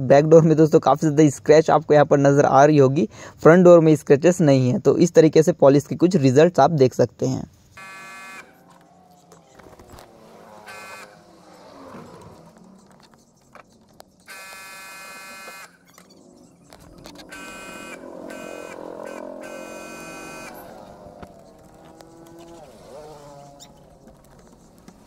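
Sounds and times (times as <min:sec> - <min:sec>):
buzzing tone: 0:07.7 - 0:25.0.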